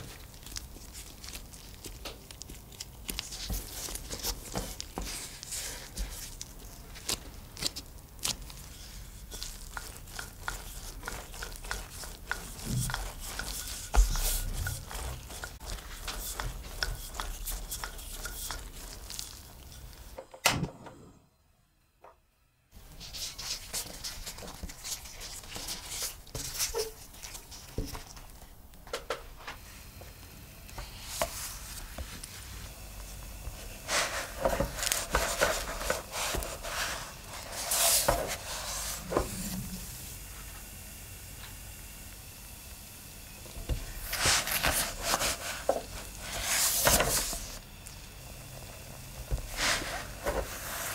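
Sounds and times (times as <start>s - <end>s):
flatbread sizzling in a pan: 0.0s - 20.2s, 30.9s - 50.9s
hands handling dough: 0.0s - 20.2s, 30.8s - 39.5s, 43.6s - 50.9s
rolling pin rolling over dough: 0.0s - 20.2s, 30.8s - 40.2s, 43.5s - 50.9s.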